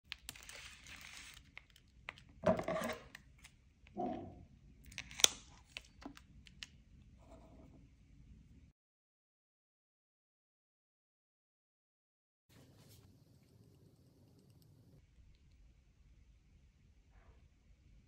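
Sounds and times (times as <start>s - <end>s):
tape peeled off roll: 0.1s - 1.8s.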